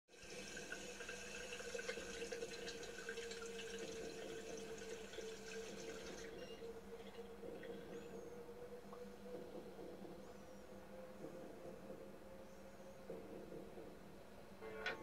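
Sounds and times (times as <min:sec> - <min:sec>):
tap water splashing into sink: 0:00.3 - 0:06.3.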